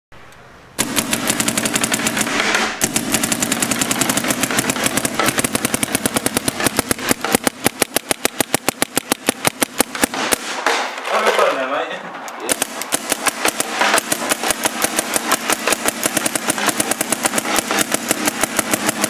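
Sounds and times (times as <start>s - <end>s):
paintball marker firing pops: 3.9s - 11.0s.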